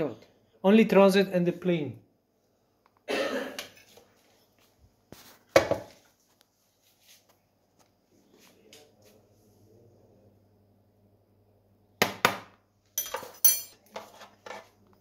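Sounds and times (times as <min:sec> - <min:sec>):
measuring spoon scraping in bowl: 0:13.6 - 0:14.8.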